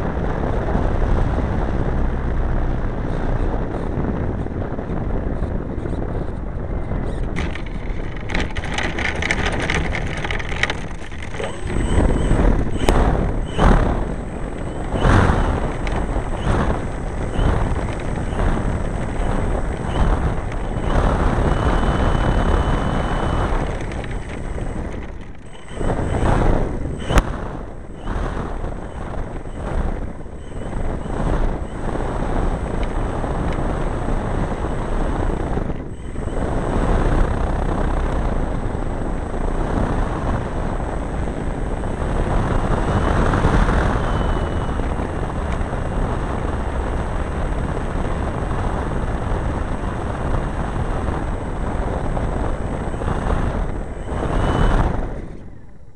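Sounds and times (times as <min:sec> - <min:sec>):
model plane engine and propeller: 0:00.0 - 0:55.9
wind noise on microphone: 0:00.0 - 0:55.9
airframe knocking and rattling: 0:05.4 - 0:34.5.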